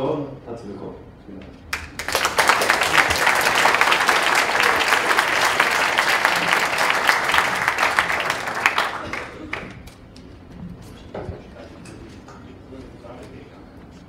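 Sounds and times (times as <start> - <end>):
audience applauding: 1.7 - 10.0.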